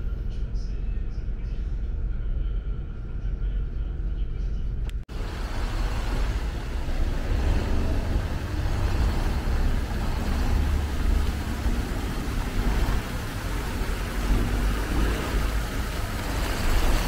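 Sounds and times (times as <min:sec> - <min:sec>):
low rumble: 0:00.0 - 0:17.0
fountain water splashing: 0:05.1 - 0:17.0.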